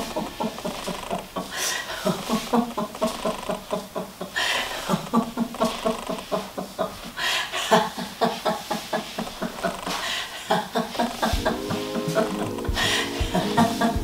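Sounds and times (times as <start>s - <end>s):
person laughing rapidly: 10.4s - 14.0s.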